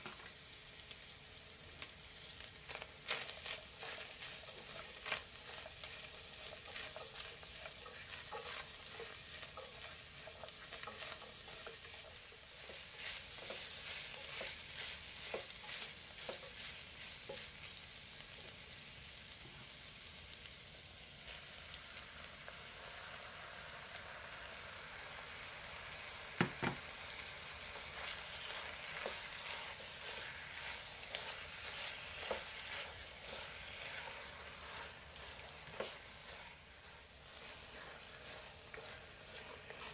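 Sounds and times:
meat and vegetables sizzling: 0:00.0 - 0:39.9
spatula scraping a pot: 0:03.0 - 0:17.7, 0:27.8 - 0:39.9.

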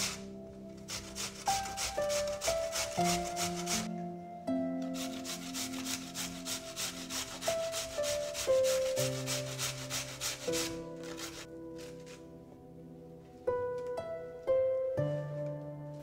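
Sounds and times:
potato rasping on metal grater: 0:00.0 - 0:03.9, 0:05.0 - 0:12.2
soft background music: 0:00.0 - 0:16.0.

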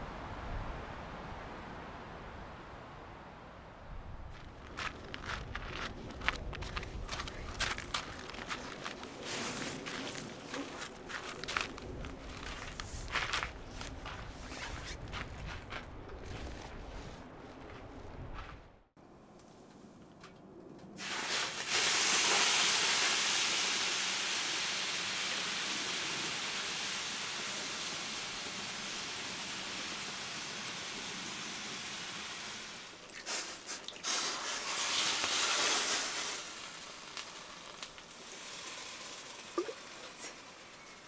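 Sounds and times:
loud steam hiss: 0:21.0 - 0:37.6.

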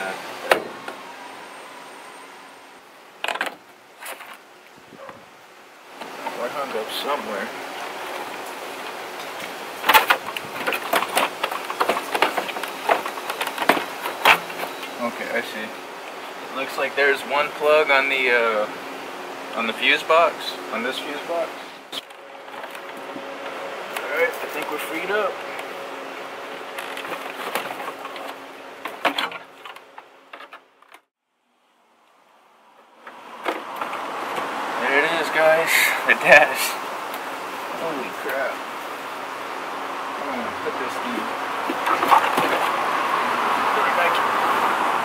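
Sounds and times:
plastic knocks and clacks: 0:09.8 - 0:14.7.

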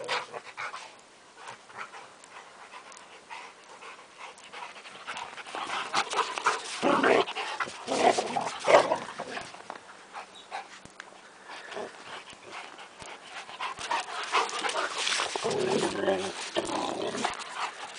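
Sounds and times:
dogs panting: 0:00.0 - 0:08.7, 0:09.4 - 0:17.9
dogs scuffling: 0:04.4 - 0:09.9, 0:11.9 - 0:17.9.

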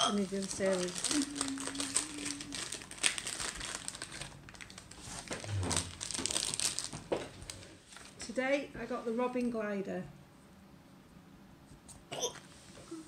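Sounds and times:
plastic packet crinkling: 0:00.1 - 0:08.2.

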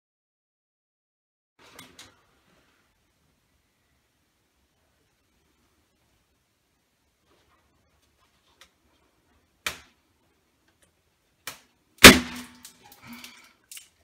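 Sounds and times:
balloon bursting pop: 0:12.0 - 0:12.6.

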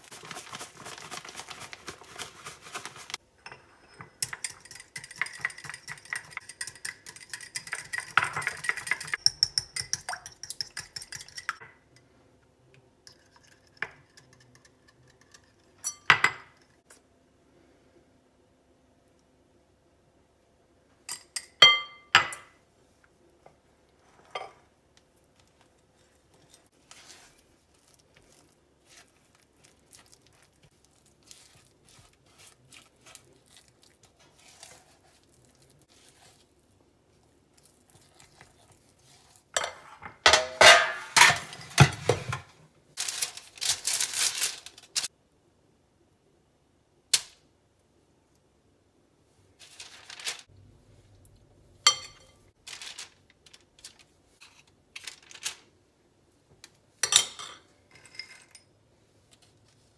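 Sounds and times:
parchment paper crinkling: 0:00.0 - 0:03.2, 0:25.2 - 0:36.7, 0:43.0 - 0:45.1, 0:49.6 - 0:50.5, 0:52.6 - 0:55.7
dough mixed by hand: 0:00.0 - 0:09.6, 0:23.9 - 0:39.6
whisk clinking on ceramic bowl: 0:03.4 - 0:11.6.

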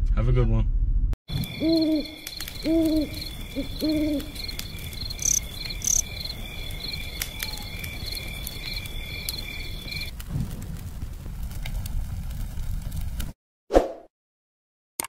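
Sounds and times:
insects trilling: 0:01.3 - 0:10.1.

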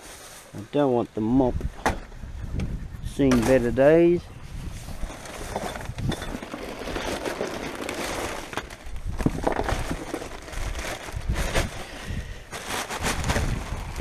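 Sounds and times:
wind rumble on microphone: 0:01.3 - 0:07.2, 0:08.8 - 0:14.0
rubbish rustling and knocking: 0:04.6 - 0:14.0.

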